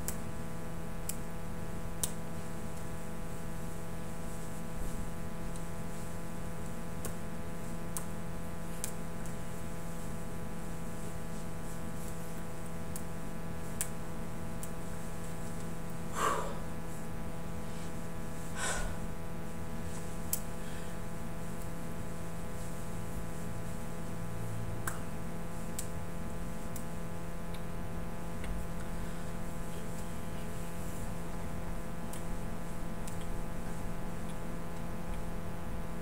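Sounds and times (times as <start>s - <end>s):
low electrical hum and hiss: 0.0s - 36.0s
short breaths: 16.1s - 16.7s, 18.5s - 19.1s.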